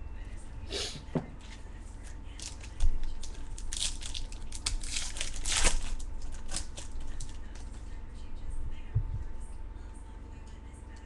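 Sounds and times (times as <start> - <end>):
foil wrapper crinkling and tearing: 2.3 - 7.8.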